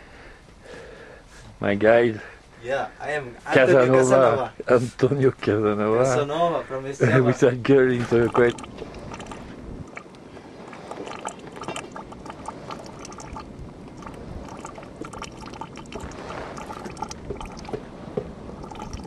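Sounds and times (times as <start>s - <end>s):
fumarole venting gas hiss: 0.0s - 19.0s.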